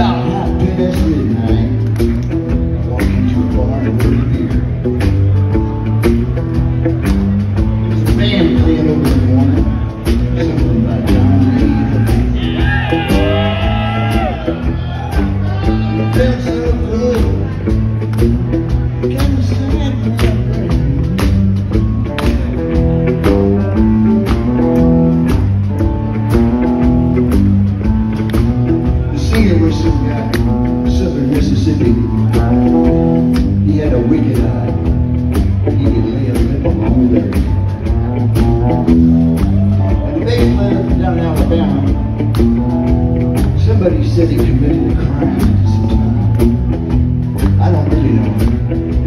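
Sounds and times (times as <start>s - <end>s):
drums with cymbal beat: 0.0s - 49.0s
electric guitars: 0.0s - 49.0s.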